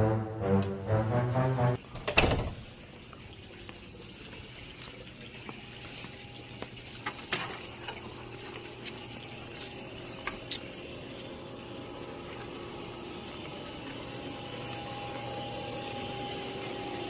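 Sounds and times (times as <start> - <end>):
faint steady hum: 2.6 - 17.0.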